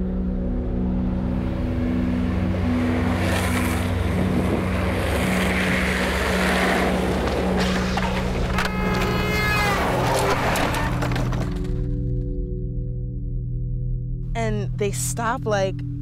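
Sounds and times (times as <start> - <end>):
low droning tone: 0.0 - 16.0
road and wind rushing: 0.8 - 8.6.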